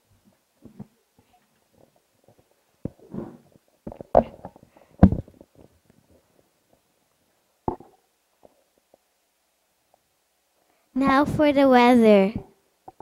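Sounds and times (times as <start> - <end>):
microphone handling thumps: 2.8 - 5.7.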